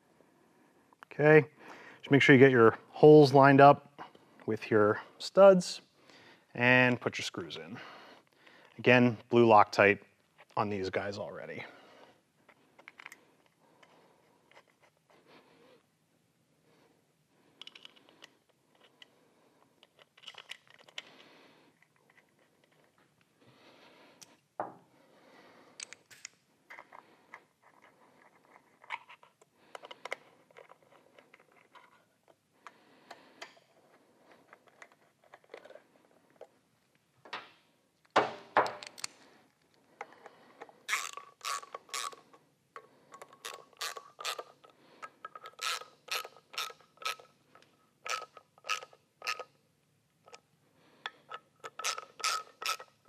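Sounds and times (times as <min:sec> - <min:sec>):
tool and parts handling: 0:12.4 - 0:15.1, 0:17.6 - 0:19.1, 0:19.7 - 0:23.3, 0:25.8 - 0:36.6, 0:37.2 - 0:49.6, 0:50.2 - 0:53.0
ratcheting screwdriver clicking: 0:40.6 - 0:49.5, 0:51.3 - 0:53.0.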